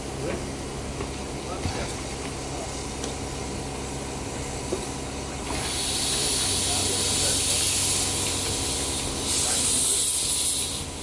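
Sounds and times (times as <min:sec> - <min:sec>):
constant low hum: 0:00.0 - 0:11.0
steam hissing: 0:05.4 - 0:11.0.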